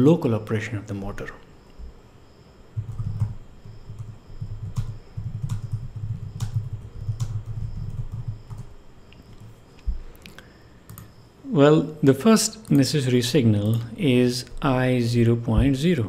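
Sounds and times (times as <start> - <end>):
typing on computer keyboard: 2.8 - 8.7, 10.9 - 11.1.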